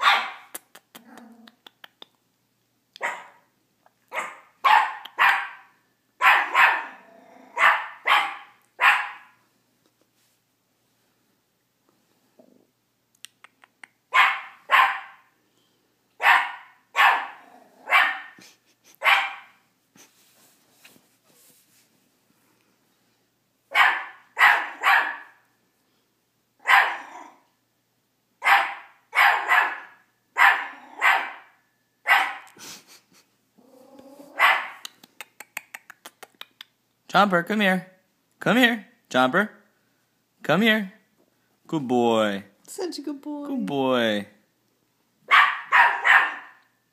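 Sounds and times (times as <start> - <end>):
small dog barking: 0.0 - 1.4, 3.0 - 3.5, 4.1 - 9.4, 14.1 - 15.3, 16.2 - 18.4, 19.0 - 19.6, 23.7 - 25.4, 26.6 - 27.4, 28.4 - 32.5, 34.3 - 34.9, 45.3 - 46.6.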